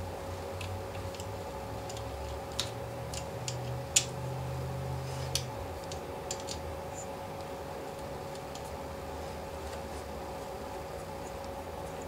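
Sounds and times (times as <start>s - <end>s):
steady hum: 0.0s - 12.0s
wiring connectors clicking: 0.5s - 4.2s, 5.3s - 6.7s.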